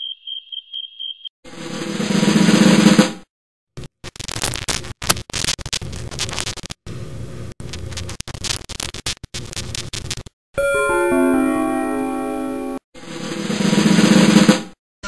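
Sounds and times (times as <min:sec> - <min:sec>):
snare drum roll: 0:01.6 - 0:03.2, 0:13.1 - 0:14.8
scratchy crackling with clicks: 0:03.8 - 0:06.9, 0:07.5 - 0:10.4.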